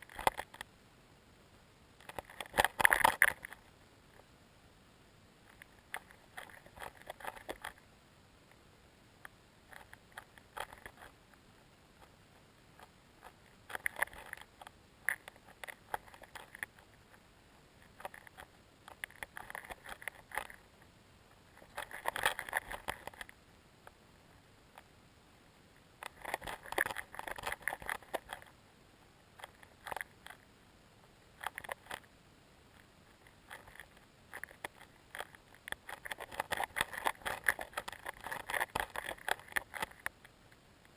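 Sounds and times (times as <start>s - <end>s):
low hiss: 0.0s - 40.9s
underwater crackling and clicking: 2.0s - 3.6s, 26.0s - 28.5s, 32.8s - 40.4s.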